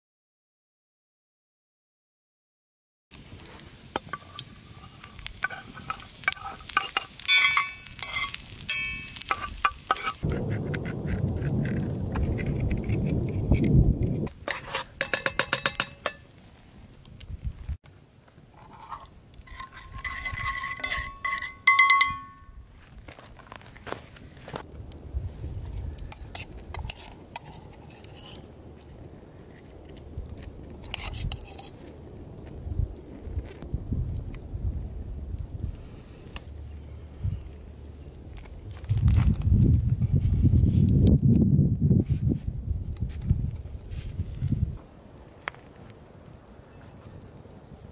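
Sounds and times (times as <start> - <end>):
vegetables sizzling in skillet: 3.2 - 10.2
clattering in a pan: 5.4 - 10.2, 14.5 - 16.2, 18.6 - 22.4
metal spoon clinking on mug: 6.9 - 9.5, 20.2 - 22.4.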